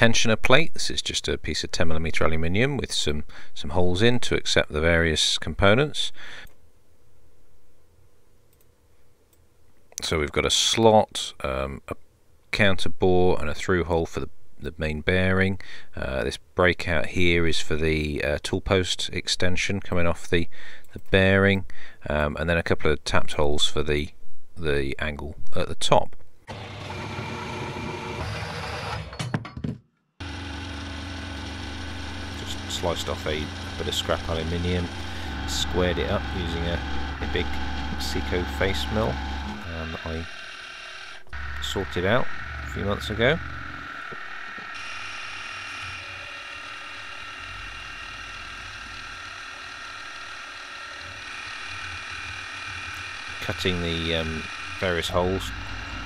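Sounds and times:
bandsaw cutting metal: 0:30.2 - 0:56.0
milling machine spindle whirring: 0:30.2 - 0:56.0.

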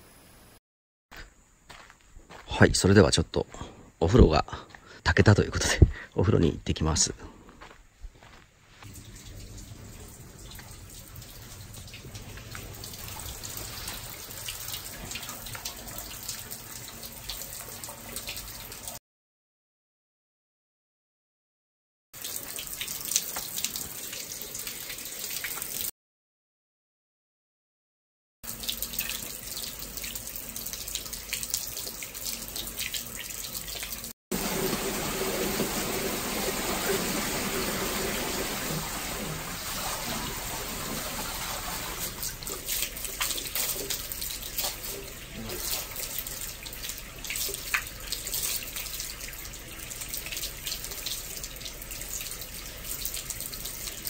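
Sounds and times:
water running and splashing: 0:08.8 - 0:19.0, 0:22.2 - 0:25.9, 0:28.4 - 0:54.0.

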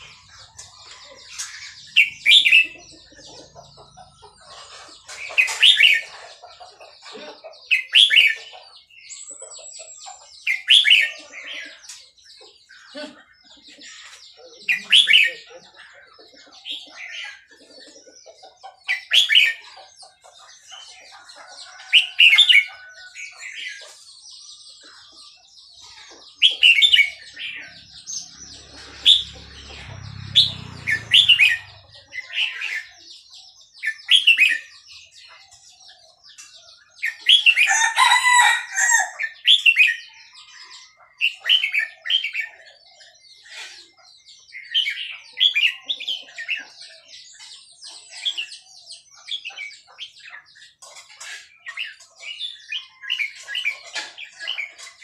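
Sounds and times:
bulbul singing: 0:26.3 - 0:38.5
rooster crowing: 0:37.6 - 0:39.4.

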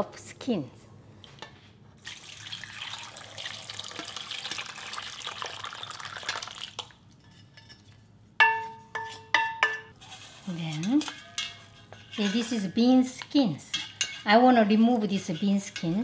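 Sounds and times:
beans and water pouring: 0:02.0 - 0:07.0
metallic knocks on pans: 0:08.4 - 0:10.0.

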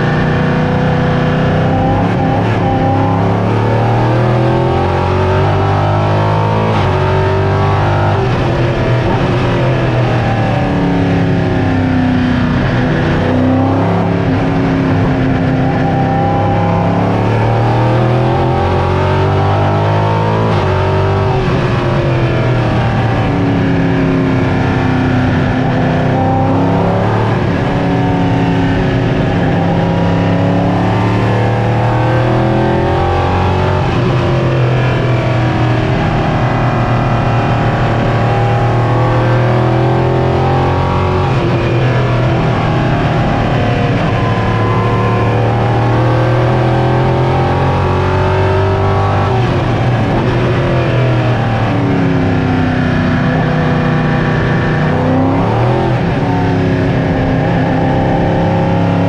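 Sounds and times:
race car engine revving and shifting: 0:00.0 - 0:59.0.

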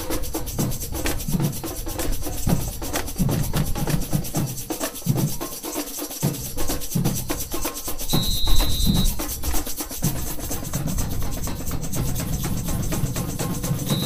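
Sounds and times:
higher drums and shakers rattling: 0:00.0 - 0:14.0
bass drum beats: 0:08.1 - 0:14.0.

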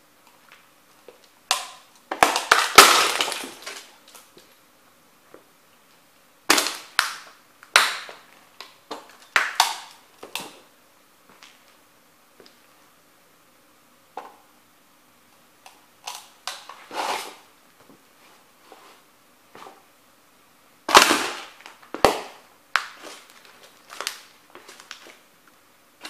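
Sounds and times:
model houses cracking under stomping: 0:01.5 - 0:03.9.

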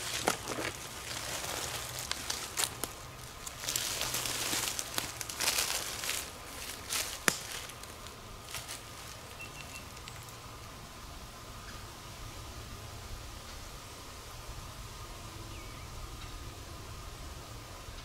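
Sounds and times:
footsteps through dry leaves: 0:00.0 - 0:10.3.

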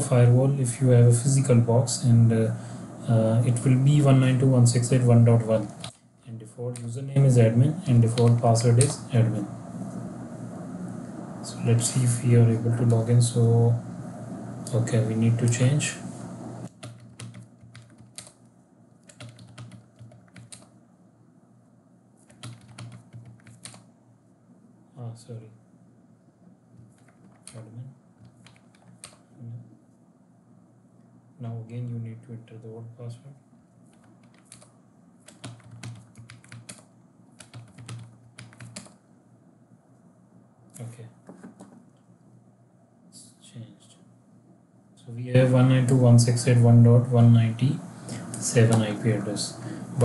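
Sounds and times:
computer keyboard typing: 0:16.7 - 0:18.4, 0:19.0 - 0:20.7, 0:22.3 - 0:23.8, 0:26.8 - 0:27.6, 0:28.2 - 0:29.2, 0:33.9 - 0:39.0.

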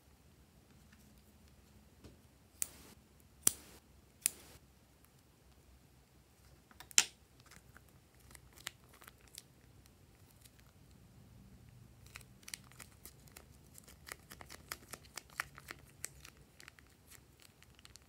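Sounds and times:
plastic bag crinkling: 0:12.1 - 0:18.0.

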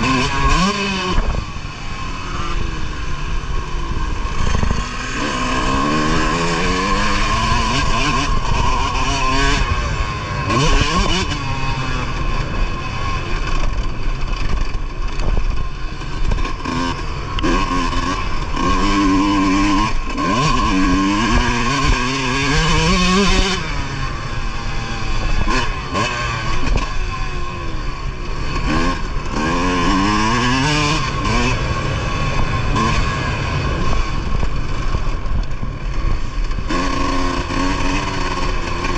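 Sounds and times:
motocross bike engine revving: 0:00.0 - 0:38.9.

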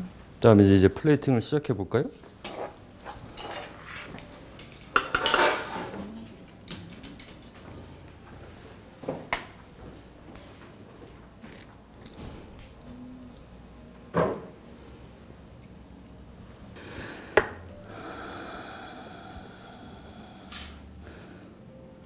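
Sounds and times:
plates and utensils clinking: 0:02.4 - 0:08.0.

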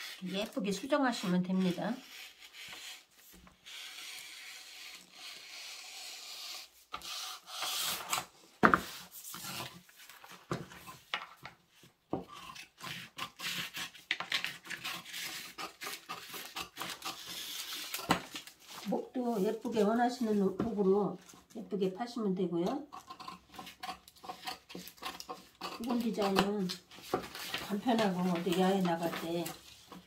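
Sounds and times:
shears cutting paper: 0:00.0 - 0:10.4, 0:12.3 - 0:21.3, 0:23.0 - 0:30.0
paper crackling and rustling: 0:14.1 - 0:21.3, 0:25.8 - 0:30.0.

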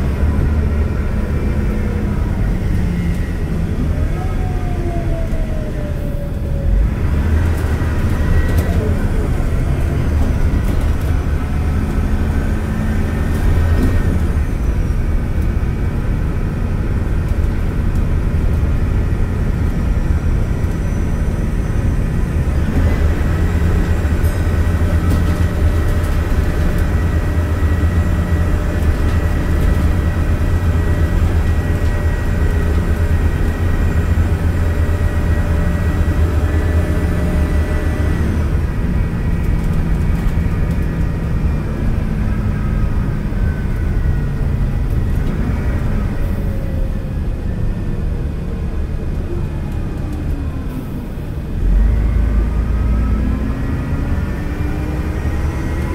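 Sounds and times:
bus engine drone: 0:00.0 - 0:55.9.

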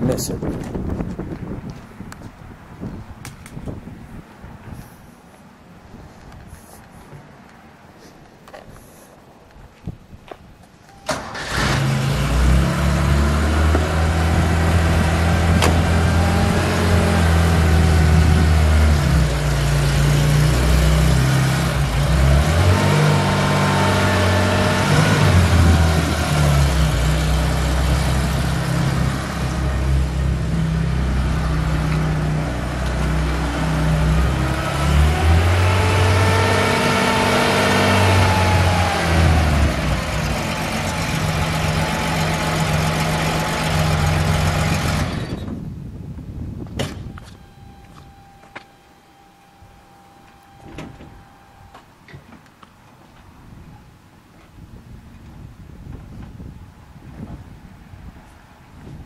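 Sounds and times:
car engine starting and running: 0:10.9 - 0:45.7, 0:46.7 - 0:52.9.

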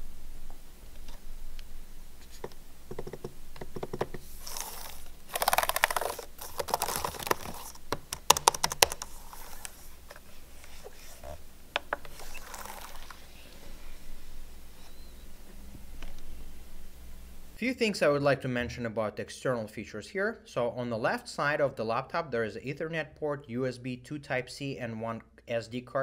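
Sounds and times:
laptop keyboard typing: 0:02.9 - 0:09.8.

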